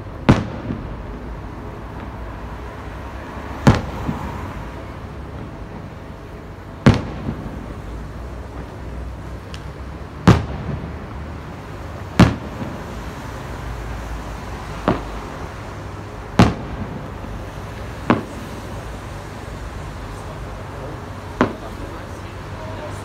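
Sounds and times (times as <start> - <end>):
distant firework bangs: 0.0 - 1.3, 3.5 - 13.9, 14.6 - 19.3, 21.3 - 22.6.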